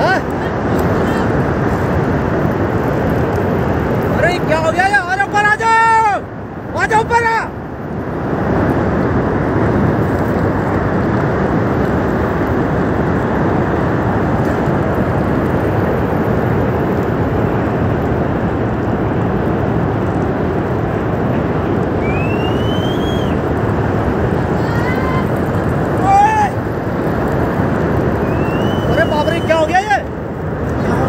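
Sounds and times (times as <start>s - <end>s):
flash flood rushing: 0.0s - 31.0s
rising whistle-like call: 22.0s - 23.4s, 28.2s - 29.7s.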